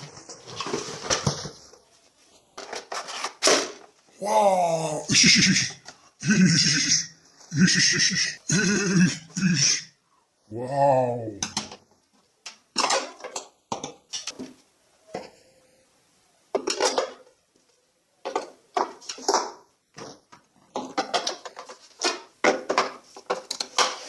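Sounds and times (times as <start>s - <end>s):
plastic toy guns clacking: 12.5s - 14.4s.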